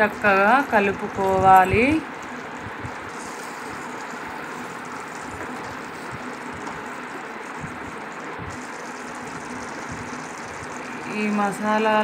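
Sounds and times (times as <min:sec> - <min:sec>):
curry sizzling in a pan: 0:00.0 - 0:12.0.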